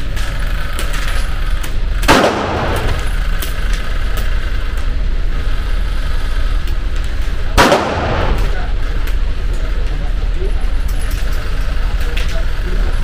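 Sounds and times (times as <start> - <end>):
steady low rumble: 0.0 - 13.0
gunshots with echo: 2.0 - 3.2, 7.5 - 8.7
faint sharp cracks: 6.6 - 9.7.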